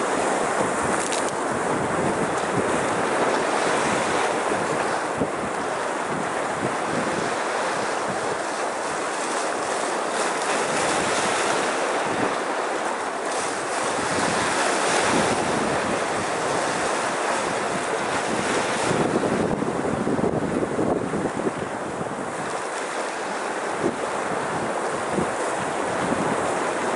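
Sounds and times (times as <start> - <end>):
wave splashing over boulder: 0.0 - 26.9
waves breaking on rocks: 0.0 - 26.9
wind on microphone: 0.0 - 26.9.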